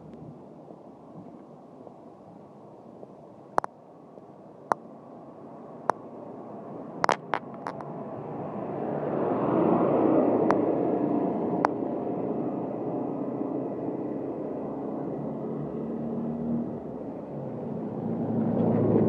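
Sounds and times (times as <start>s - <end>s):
golf cart passing: 6.6s - 19.0s.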